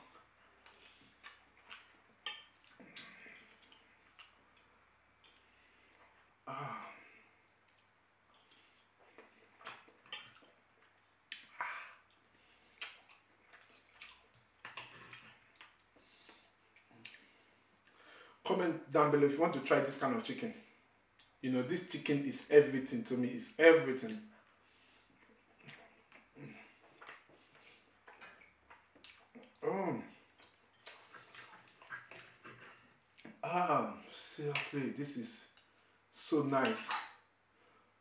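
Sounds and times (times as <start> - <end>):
close-up chewing: 0.0 - 6.3, 7.4 - 18.0, 24.3 - 29.6, 30.2 - 33.4.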